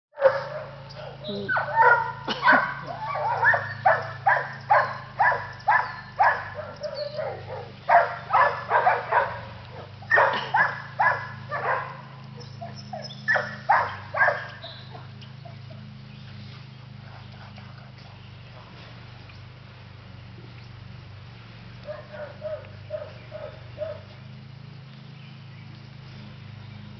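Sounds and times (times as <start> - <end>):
puppy barking: 0.2 - 15.9, 21.8 - 24.1.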